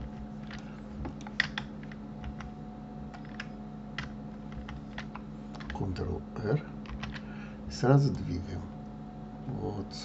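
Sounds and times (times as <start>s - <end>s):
keyboard keys clicking: 0.0s - 5.8s, 6.8s - 7.3s
low electrical hum: 0.0s - 10.0s.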